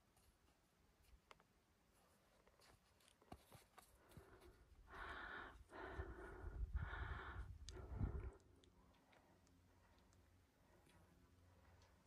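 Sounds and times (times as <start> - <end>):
person breathing hard: 3.9 - 10.0
low rumble on microphone: 6.1 - 8.4.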